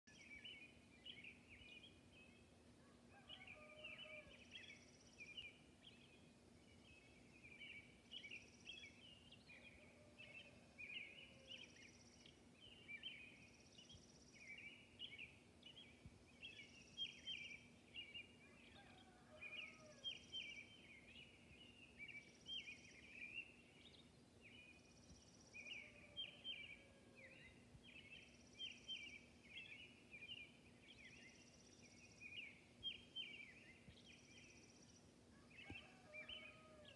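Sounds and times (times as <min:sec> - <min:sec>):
rooster crowing faintly: 0:02.8 - 0:04.5, 0:18.6 - 0:20.1, 0:35.3 - 0:36.9.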